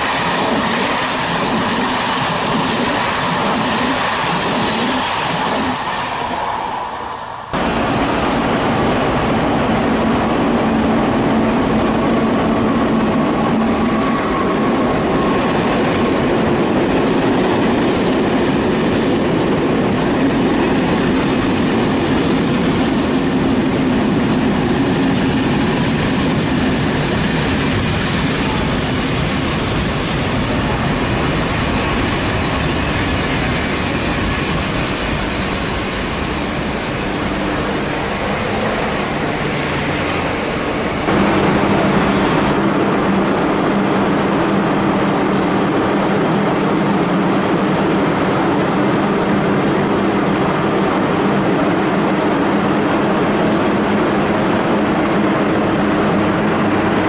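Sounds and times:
train rumble and wheel clatter: 0:00.0 - 0:57.0
train brakes squealing: 0:26.7 - 0:27.6, 0:43.4 - 0:43.8, 0:45.1 - 0:46.6.

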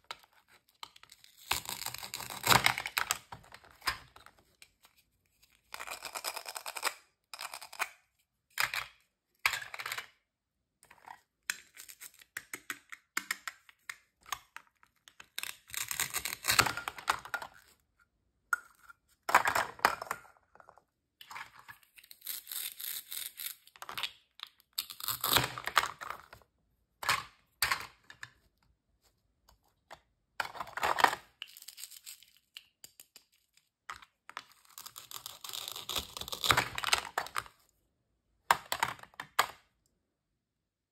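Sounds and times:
plastic toy clicks and knocks: 0:38.5 - 0:39.6.

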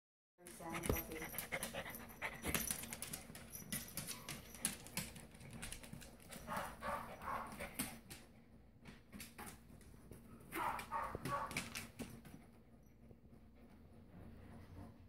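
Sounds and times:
dog claws clicking on wooden floor: 0:00.5 - 0:12.4.

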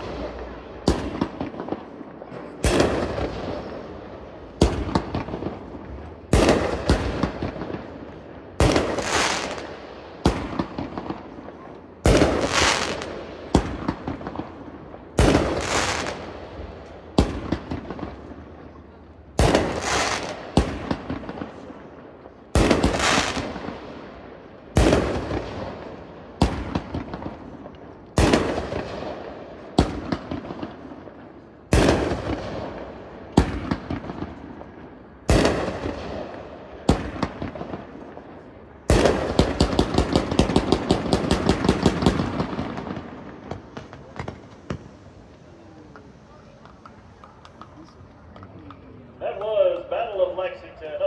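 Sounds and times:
firework shots banging and crackling: 0:00.0 - 0:51.0
rapid firework pops: 0:38.9 - 0:45.0.

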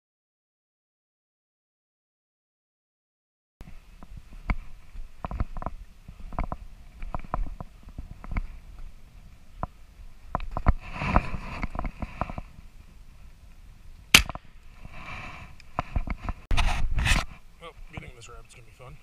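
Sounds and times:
scraping rustle: 0:10.5 - 0:12.7, 0:14.7 - 0:18.2.

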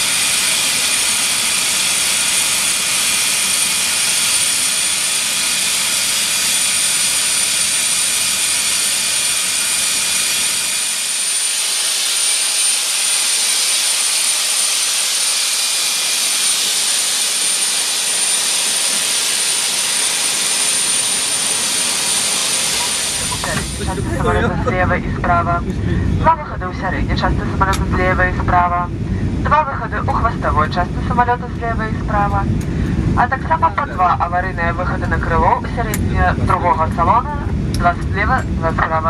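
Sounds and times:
jet turbine whine: 0:00.0 - 0:39.0
low rumble: 0:23.2 - 0:39.0.

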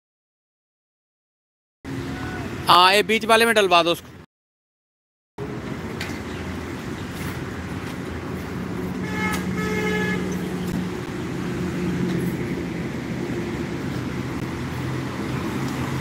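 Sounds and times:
road traffic: 0:01.8 - 0:04.3, 0:05.4 - 0:16.0
vehicle horn honking: 0:09.0 - 0:10.5.

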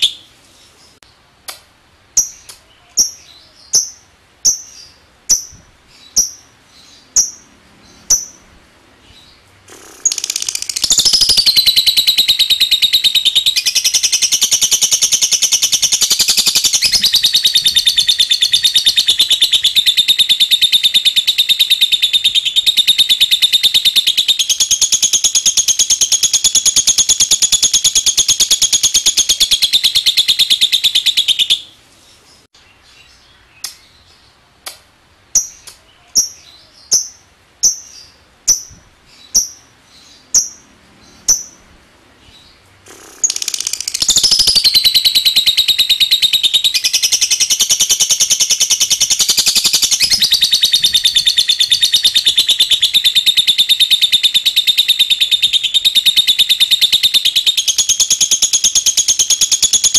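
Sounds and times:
sharp bird chirps: 0:00.0 - 0:01.0, 0:09.1 - 0:31.7, 0:42.3 - 0:59.9
lovebird chattering trill: 0:02.2 - 0:08.5, 0:09.1 - 0:31.7, 0:35.3 - 0:41.7, 0:42.3 - 0:59.9.

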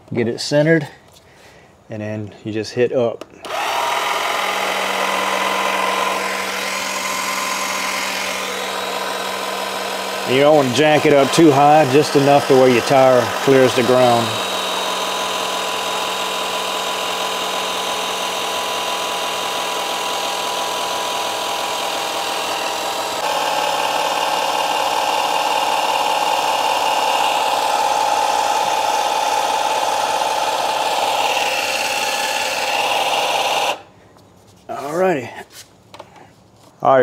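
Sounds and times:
electric car jack motor: 0:03.4 - 0:33.9.

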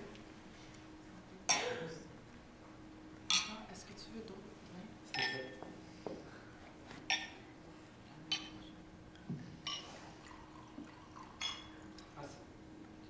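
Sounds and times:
faint steady hum: 0:00.0 - 0:13.0
glassware and cutlery clinking: 0:03.3 - 0:03.7, 0:05.1 - 0:05.6, 0:07.1 - 0:07.4, 0:08.3 - 0:08.7, 0:09.6 - 0:11.9.

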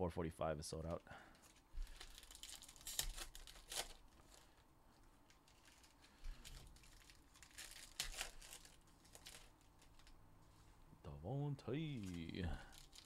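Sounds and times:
card pack wrappers crinkling and tearing: 0:01.3 - 0:10.2, 0:11.8 - 0:13.0.

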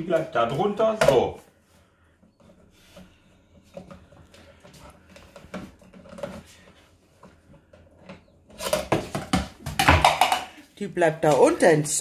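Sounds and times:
plastic cup clattering on tile floor: 0:08.5 - 0:11.6.

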